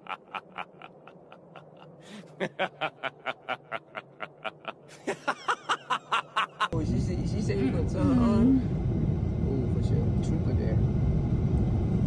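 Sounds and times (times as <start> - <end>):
person laughing breathily: 0.0 - 6.7.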